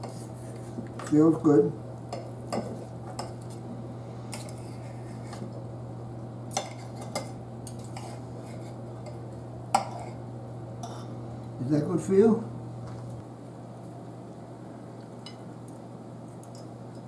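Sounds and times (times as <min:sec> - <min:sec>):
steady low hum: 0:00.0 - 0:17.0
knife and fork scraping metal platter: 0:06.5 - 0:09.2.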